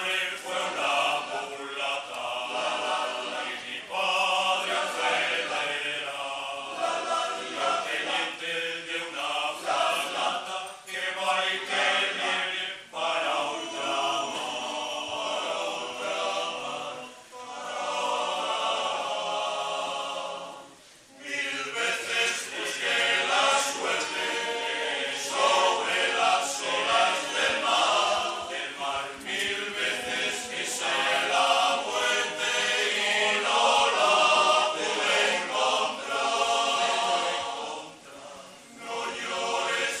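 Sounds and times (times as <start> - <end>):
male choir singing a cappella: 0.0 - 40.0.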